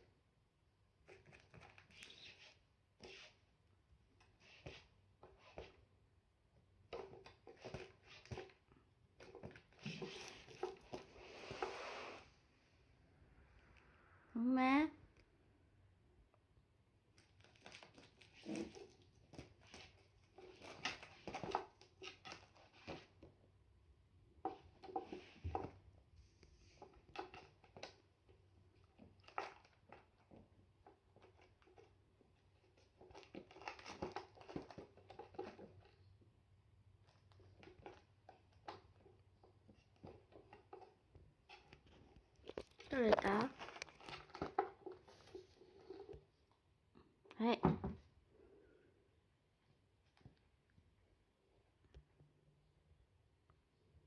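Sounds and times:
kitten rustling against wicker toy: 0:06.9 - 0:12.4, 0:17.1 - 0:23.3, 0:24.4 - 0:36.0, 0:37.0 - 0:46.4.

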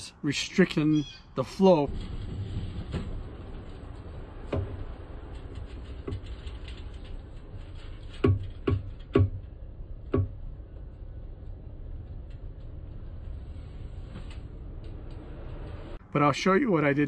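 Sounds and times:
steady low background noise: 0:00.0 - 0:17.0
plastic tube knocking on metal neck: 0:08.2 - 0:09.5, 0:10.1 - 0:10.4.

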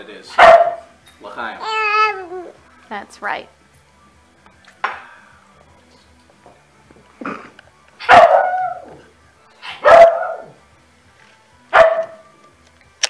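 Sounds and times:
dog barking: 0:00.3 - 0:01.0, 0:08.0 - 0:09.0, 0:09.7 - 0:10.6, 0:11.7 - 0:12.2.

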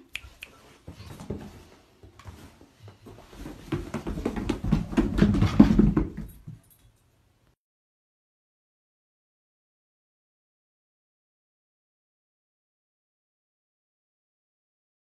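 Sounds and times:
dog paws thudding on carpeted stairs: 0:00.8 - 0:06.8.

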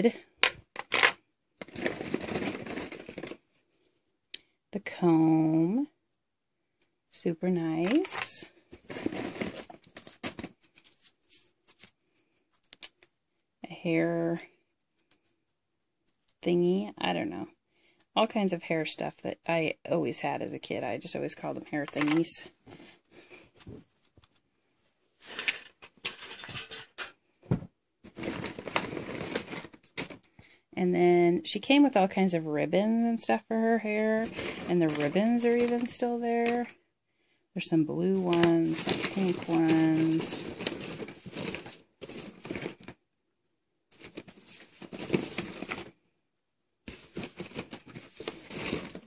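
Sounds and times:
plastic accessories rustling and clattering: 0:00.0 - 0:03.6, 0:07.7 - 0:13.1, 0:21.4 - 0:24.4, 0:25.2 - 0:30.4, 0:33.3 - 0:36.7, 0:37.8 - 0:43.0, 0:43.9 - 0:46.0, 0:46.9 - 0:49.0.

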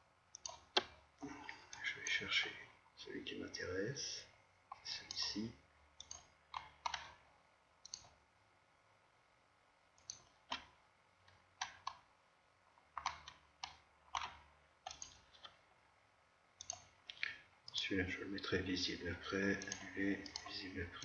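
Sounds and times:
computer mouse buttons clicking: 0:00.4 - 0:01.0, 0:06.0 - 0:07.2, 0:07.8 - 0:08.2, 0:10.0 - 0:12.0, 0:13.0 - 0:15.6, 0:16.6 - 0:17.3.

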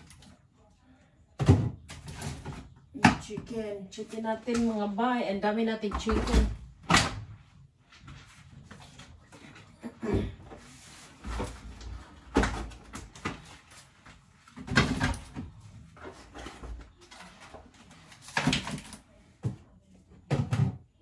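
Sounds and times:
packages knocking and rustling: 0:11.1 - 0:19.6.

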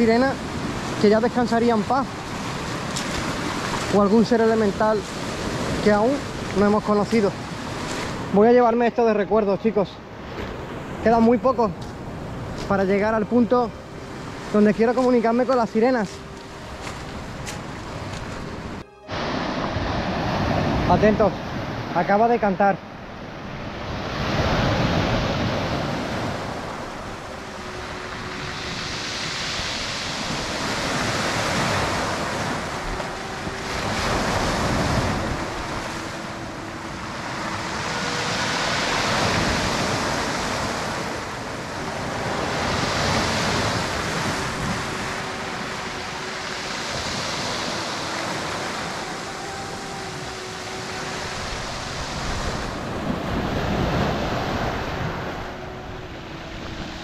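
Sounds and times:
waves breaking on pebble beach: 0:00.0 - 0:08.3, 0:24.0 - 0:55.7
faint drawn-out tones: 0:26.3 - 0:30.8, 0:31.6 - 0:57.0.

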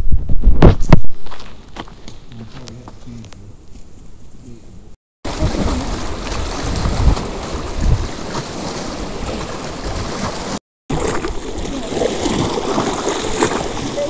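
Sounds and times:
waves lapping at shore: 0:05.2 - 0:14.0
wind buffeting microphone: 0:05.3 - 0:10.6.

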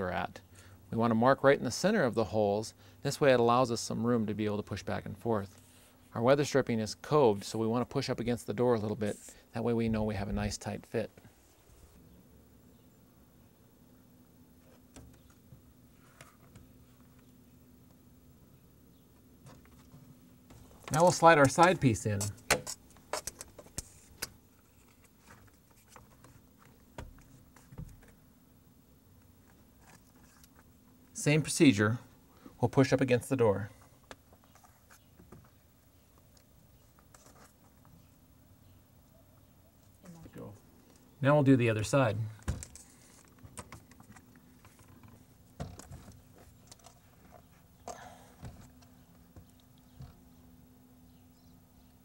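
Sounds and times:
weather strip handling noise: 0:19.4 - 0:28.2.

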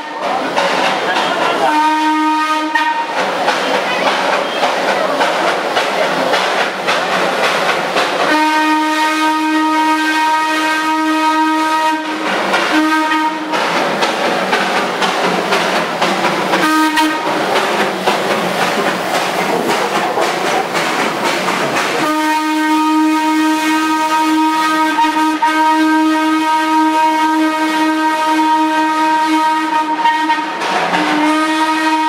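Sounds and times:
steam locomotive working steam: 0:00.0 - 0:32.0
steam whistle blasts: 0:01.7 - 0:03.2, 0:08.3 - 0:13.5, 0:16.6 - 0:17.3, 0:22.0 - 0:32.0.

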